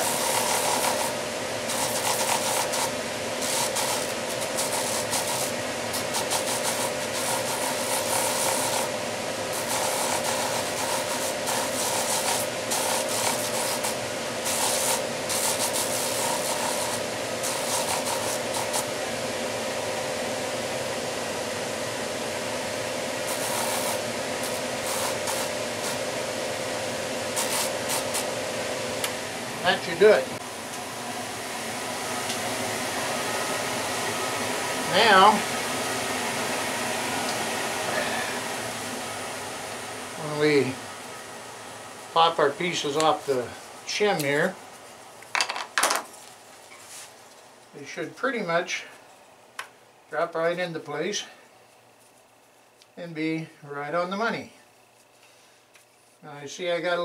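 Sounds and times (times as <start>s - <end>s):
wood rasping on sanding drum: 0.0s - 19.0s, 23.2s - 26.1s, 27.3s - 28.3s
motor hum: 0.0s - 46.6s.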